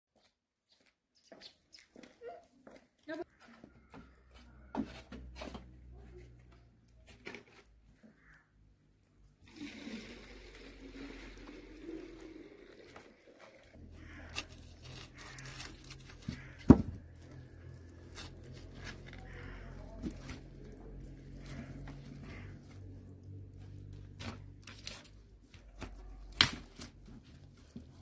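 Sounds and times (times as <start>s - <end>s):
leaves rustling: 10.0s - 28.0s.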